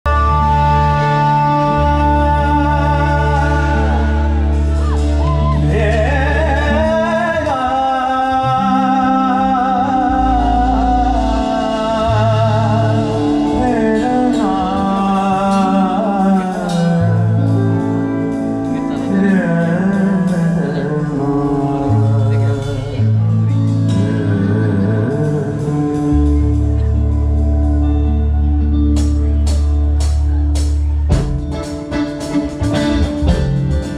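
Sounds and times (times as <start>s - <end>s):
bass: 0.0s - 33.9s
held keyboard chords: 0.0s - 33.9s
man singing: 0.0s - 33.9s
drum strikes: 28.9s - 33.9s.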